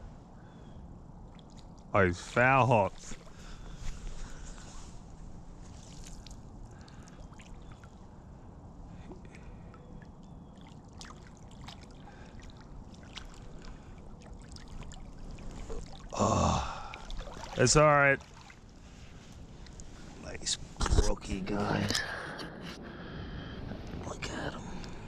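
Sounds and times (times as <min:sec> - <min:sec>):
small stream trickling: 0:01.1 - 0:20.1.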